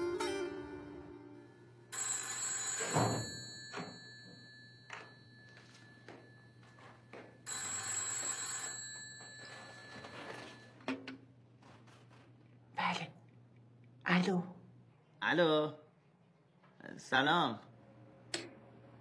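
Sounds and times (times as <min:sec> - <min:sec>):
telephone bell ringing: 0:01.9 - 0:10.9.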